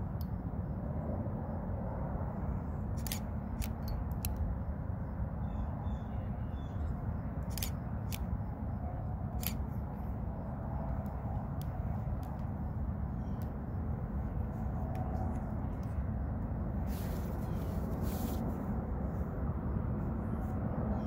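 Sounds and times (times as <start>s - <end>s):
sharp clicks: 3.0s - 4.5s, 7.4s - 8.3s.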